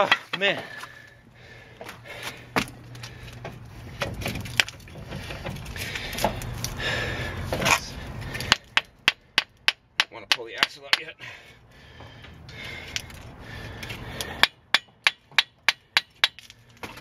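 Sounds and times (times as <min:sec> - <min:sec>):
metal scraping and clunking: 0:02.8 - 0:06.7
sharp metal knocks: 0:08.4 - 0:11.1, 0:14.4 - 0:16.5.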